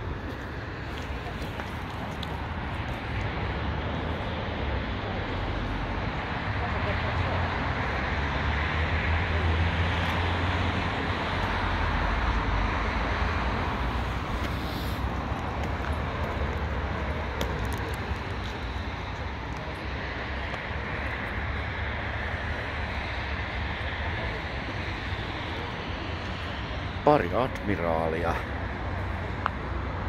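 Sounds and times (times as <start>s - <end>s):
car park noise: 0.0s - 30.0s.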